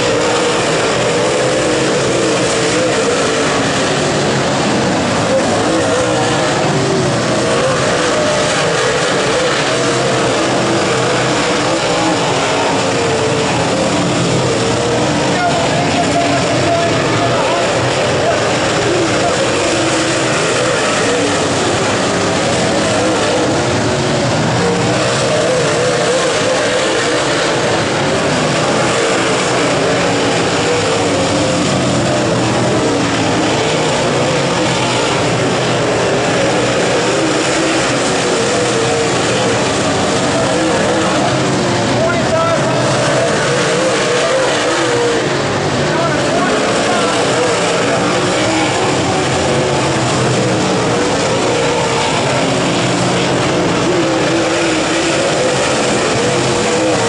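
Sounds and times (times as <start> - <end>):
race car engines roaring: 0.0 - 57.0.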